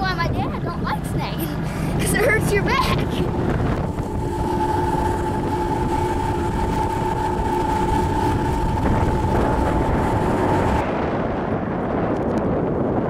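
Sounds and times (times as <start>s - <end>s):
outboard motor running: 0.0s - 13.0s
rushing wind: 0.0s - 13.0s.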